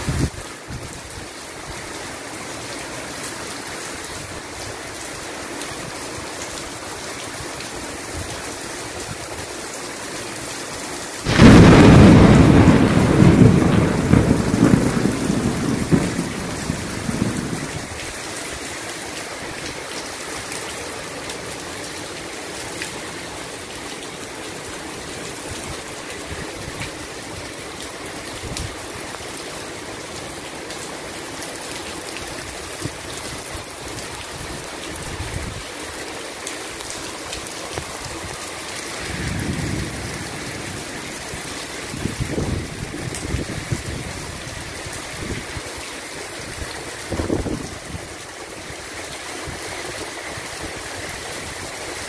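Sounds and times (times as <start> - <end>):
heavy rain falling: 0.0 - 52.0
thunder crack and rumble: 11.2 - 17.9, 38.9 - 44.0.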